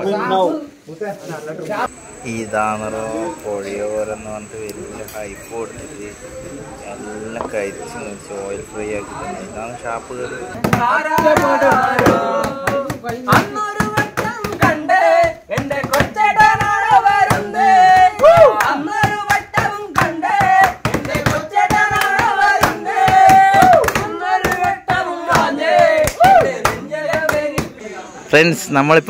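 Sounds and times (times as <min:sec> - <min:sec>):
men singing together: 0:10.6 - 0:28.0
hand claps: 0:10.7 - 0:27.8.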